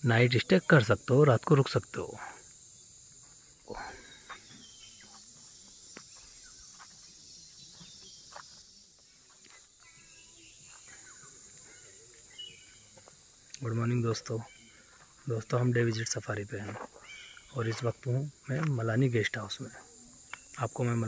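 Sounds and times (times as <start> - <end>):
insects droning: 0.0 - 21.0
bird chirps: 3.7 - 15.0, 17.0 - 18.0.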